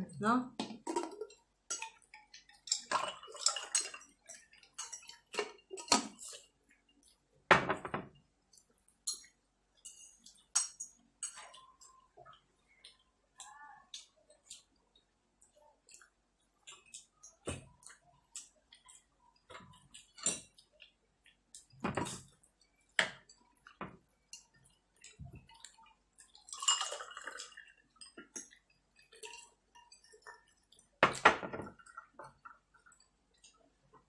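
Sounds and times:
water pouring into a glass: 0:01.0 - 0:06.4, 0:24.5 - 0:33.5
cutlery clinking on a plate: 0:09.1 - 0:11.5.

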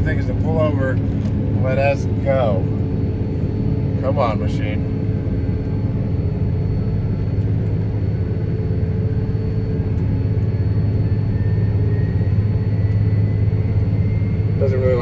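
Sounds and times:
diesel engine labouring: 0:00.0 - 0:05.0
faint engine whine: 0:00.0 - 0:15.0.

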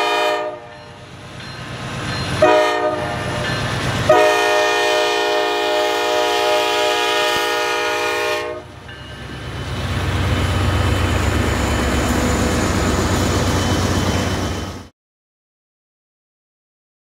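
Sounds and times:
locomotive air horn: 0:00.0 - 0:00.7, 0:02.4 - 0:03.4, 0:04.1 - 0:08.8
locomotive rumbling past: 0:00.0 - 0:14.9.

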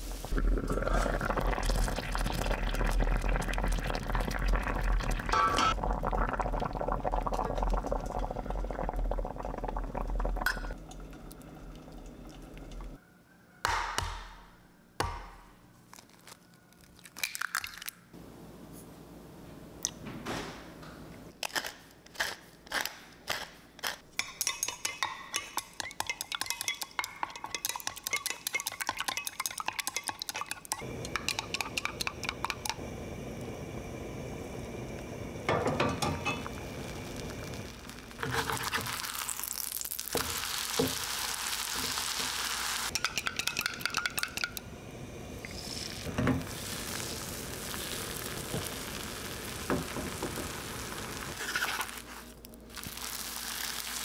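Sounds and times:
utensils and dishes clinking: 0:42.9 - 0:44.7.

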